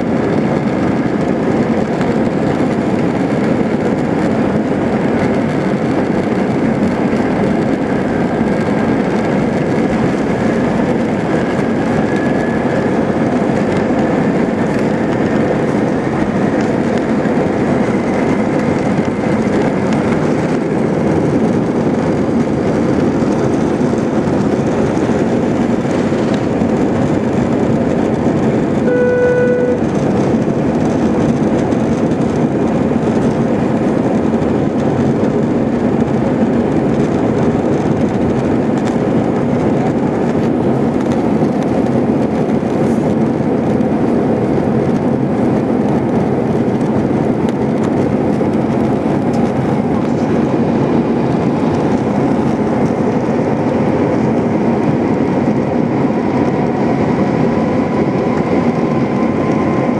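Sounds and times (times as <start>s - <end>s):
jet engines roaring with whine: 0.0s - 59.9s
short single tone: 28.8s - 30.0s.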